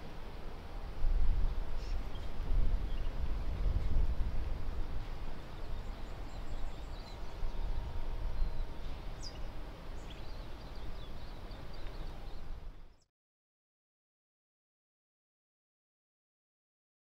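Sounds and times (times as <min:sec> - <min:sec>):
faint bird chirps: 0:05.5 - 0:13.1.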